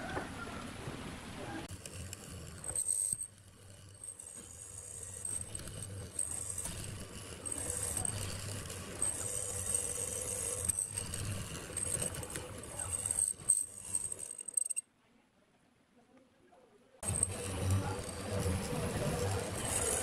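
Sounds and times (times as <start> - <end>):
mortiser whining: 1.6 - 14.4, 17.0 - 20.0.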